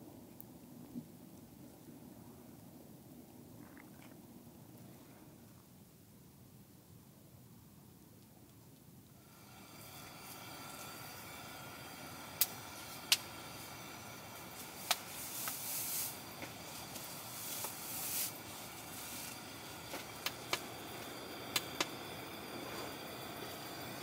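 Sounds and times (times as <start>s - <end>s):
steady low hiss: 0.0s - 24.0s
lantern clicks: 12.3s - 22.2s.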